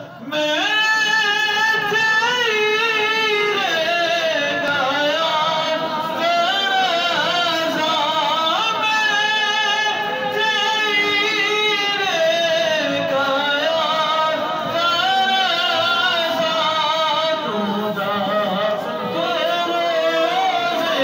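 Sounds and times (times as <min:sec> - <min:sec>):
man singing into microphone: 0:00.0 - 0:21.0.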